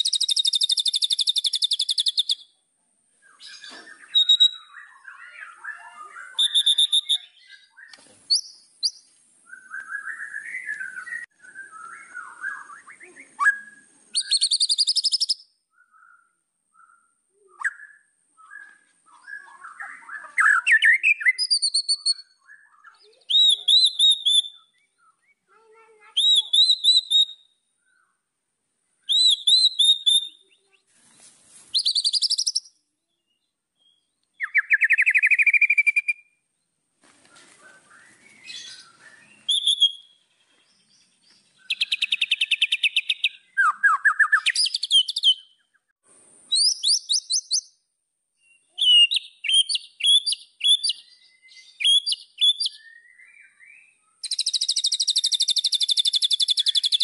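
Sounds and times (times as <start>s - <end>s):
bird singing: 0.0s - 30.9s, 31.7s - 36.8s, 37.6s - 57.0s.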